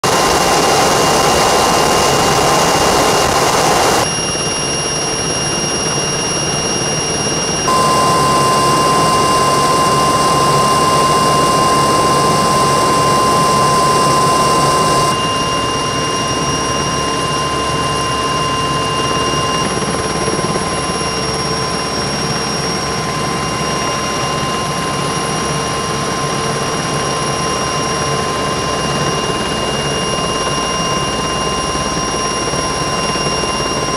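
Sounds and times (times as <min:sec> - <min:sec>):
engine and rotor rushing: 0:00.0 - 0:04.4, 0:07.7 - 0:15.9
helicopter turbine whine: 0:00.0 - 0:33.9.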